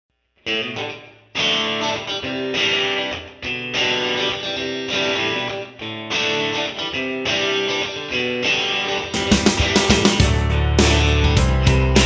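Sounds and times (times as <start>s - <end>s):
ringing chords music: 9.2s - 12.0s.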